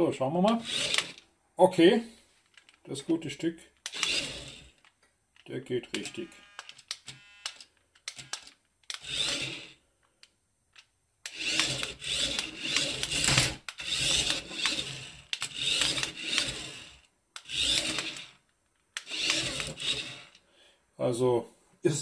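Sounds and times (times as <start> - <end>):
toy car driving on wooden floor: 0.5 - 1.2, 3.8 - 4.9, 6.0 - 9.8, 11.3 - 20.4.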